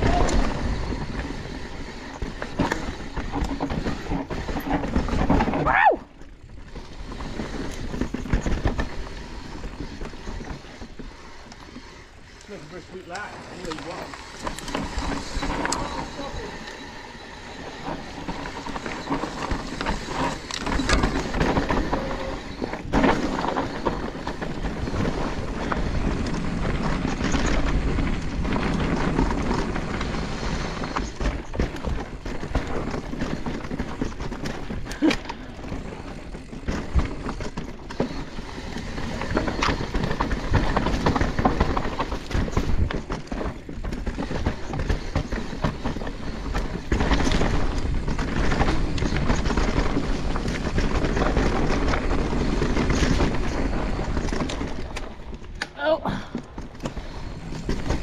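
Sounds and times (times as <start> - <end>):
bike knocking and rattling: 0.0 - 58.0
tyre noise on dirt: 0.0 - 58.0.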